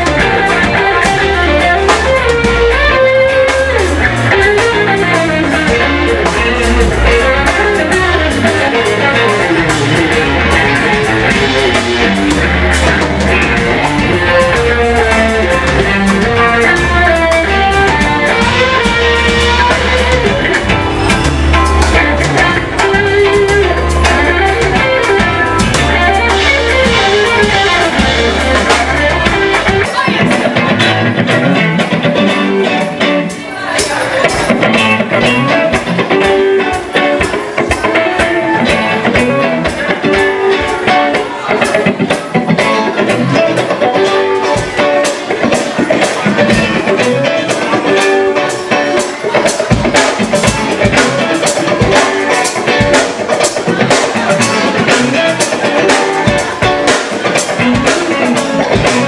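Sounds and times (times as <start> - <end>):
drum kit: 0.0 - 59.0
electric bass line: 0.0 - 59.0
electric guitars: 0.0 - 59.0.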